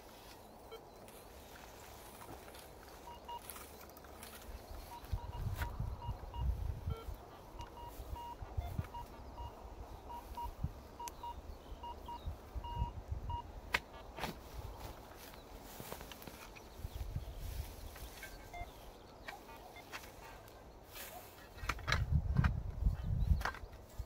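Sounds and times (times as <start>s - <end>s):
metal detector beeps: 3.0s - 3.8s, 4.8s - 13.5s, 18.2s - 18.8s.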